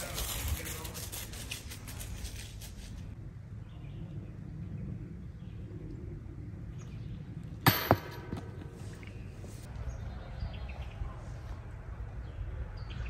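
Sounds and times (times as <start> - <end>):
disc hitting metal basket: 7.7 - 8.9.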